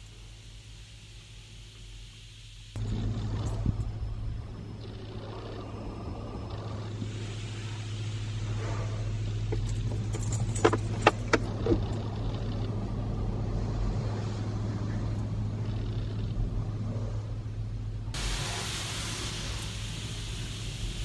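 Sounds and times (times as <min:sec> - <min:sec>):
water spray hissing on car: 0:00.0 - 0:02.8, 0:07.0 - 0:09.5, 0:18.2 - 0:21.0
low hum: 0:00.0 - 0:21.0
sharp clicks and knocks: 0:09.5 - 0:12.6.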